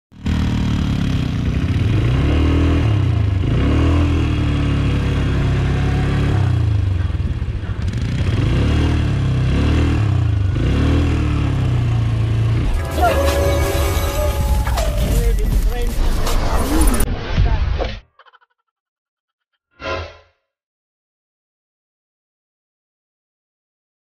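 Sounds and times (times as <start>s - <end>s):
atv engine revving: 0.2s - 15.3s.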